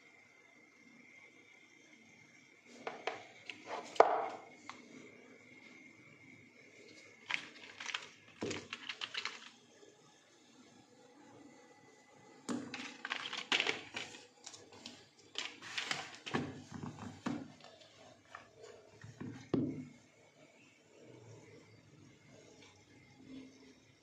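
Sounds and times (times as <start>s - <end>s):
packaging rustling: 6.9s - 9.6s, 12.6s - 18.7s.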